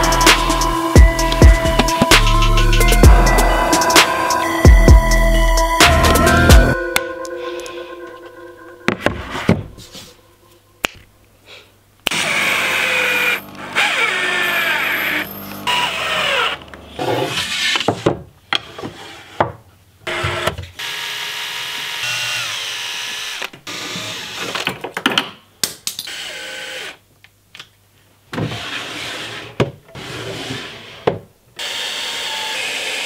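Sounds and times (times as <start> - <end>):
cordless drill whining: 12.1 - 16.6, 31.6 - 33.0.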